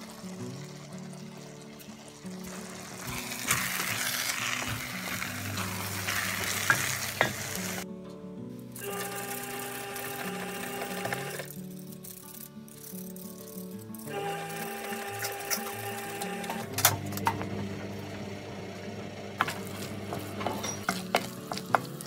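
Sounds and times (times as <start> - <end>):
rice sizzling in pot: 0.0 - 7.9, 8.8 - 17.4, 19.2 - 22.0
spoon clinking against pot: 20.4 - 21.3.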